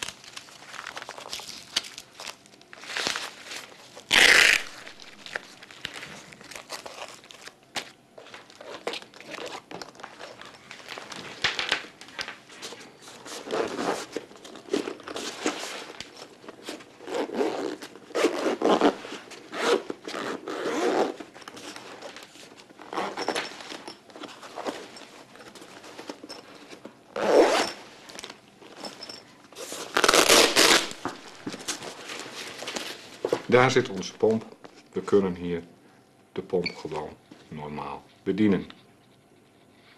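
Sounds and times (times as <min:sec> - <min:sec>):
zip scraping pulls: 0:04.1 - 0:04.8, 0:17.0 - 0:21.2, 0:27.2 - 0:27.8, 0:29.9 - 0:31.0
fabric rustling: 0:08.2 - 0:33.6.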